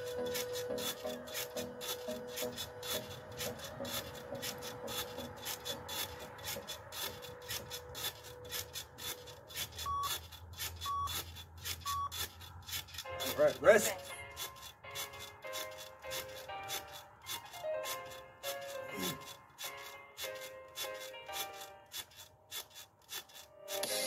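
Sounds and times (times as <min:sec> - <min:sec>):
trampoline springs creaking: 0:00.0 - 0:24.0
short beeps: 0:09.8 - 0:10.2, 0:10.8 - 0:11.2, 0:11.8 - 0:12.1.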